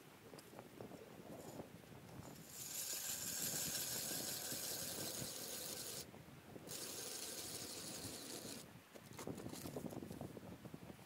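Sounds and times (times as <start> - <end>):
ice auger grinding through ice: 2.3 - 6.1, 6.7 - 8.6.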